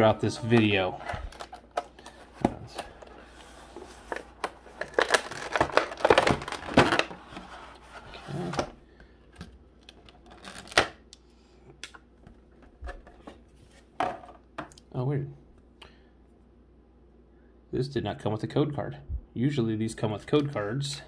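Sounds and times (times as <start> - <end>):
plastic tray crinkling: 0.4 - 7.7.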